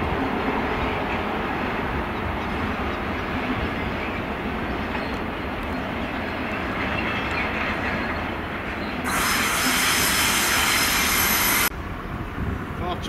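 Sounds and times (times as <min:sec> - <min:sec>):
train wheels grinding on rails: 0:00.0 - 0:11.7
wheel flanges screeching: 0:02.6 - 0:11.7.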